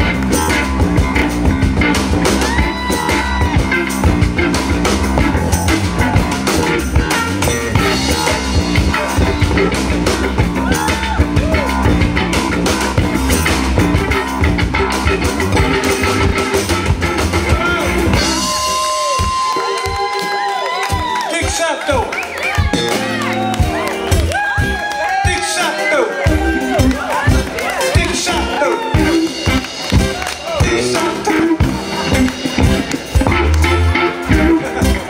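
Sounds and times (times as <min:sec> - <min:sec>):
person singing: 0:00.0 - 0:01.2, 0:05.2 - 0:12.1, 0:30.4 - 0:35.0
electric guitar: 0:00.0 - 0:21.3, 0:22.1 - 0:35.0
drum kit beat: 0:00.0 - 0:35.0.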